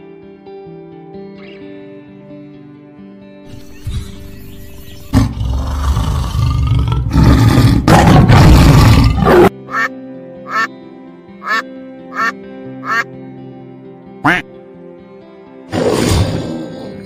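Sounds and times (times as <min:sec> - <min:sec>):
soft background music: 0:00.0 - 0:05.9, 0:08.8 - 0:17.0
tiger growling: 0:05.1 - 0:09.5
duck quacking: 0:09.6 - 0:10.7, 0:11.4 - 0:13.1, 0:14.2 - 0:14.5.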